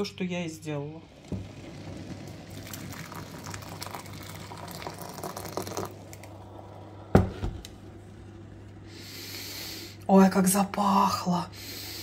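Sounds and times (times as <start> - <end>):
water pouring: 1.0 - 7.0.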